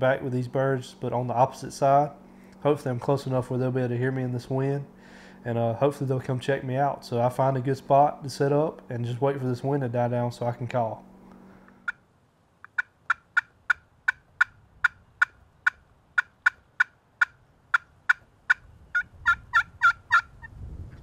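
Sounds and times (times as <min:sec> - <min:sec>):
turkey call yelping: 0:12.6 - 0:20.5.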